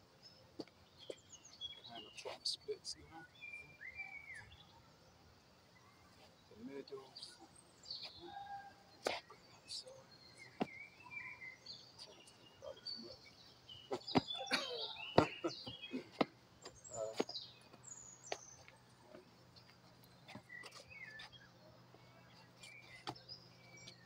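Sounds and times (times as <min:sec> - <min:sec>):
birds chirping: 0:00.0 - 0:24.0
sharp taps and scuffs: 0:10.5 - 0:10.8, 0:13.8 - 0:14.5, 0:15.2 - 0:21.4, 0:22.4 - 0:24.0.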